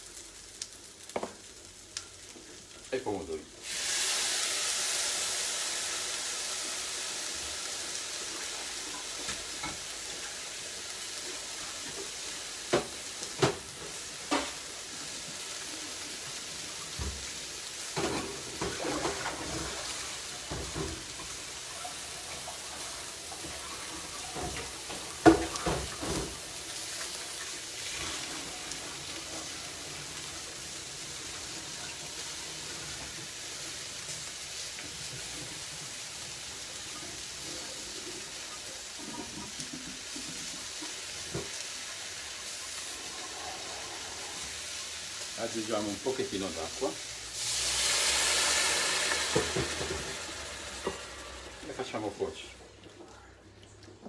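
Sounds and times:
vegetables sizzling in frying pan: 0:00.0 - 0:52.9.

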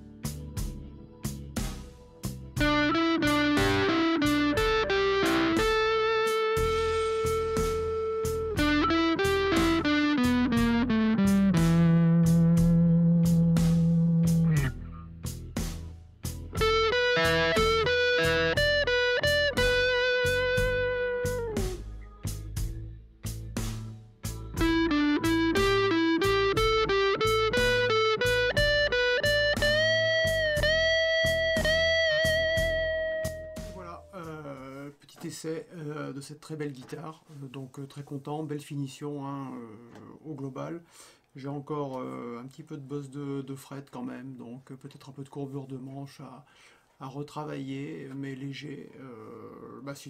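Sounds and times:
overdriven electric guitar lead: 0:02.6 - 0:14.9, 0:16.6 - 0:21.8, 0:24.6 - 0:33.9.

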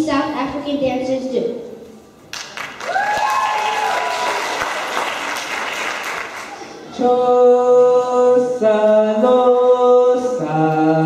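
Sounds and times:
audience applauding and cheering: 0:02.3 - 0:06.7
rising whoop: 0:02.8 - 0:04.6.

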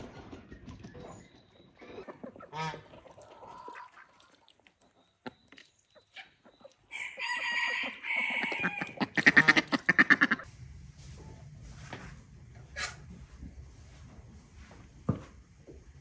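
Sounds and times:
chickens clucking: 0:00.0 - 0:10.5, 0:12.6 - 0:13.1
rooster crowing: 0:06.9 - 0:09.0.

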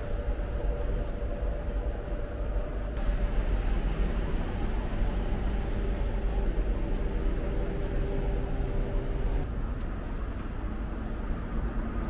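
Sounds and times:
vending machines humming: 0:00.0 - 0:09.5.

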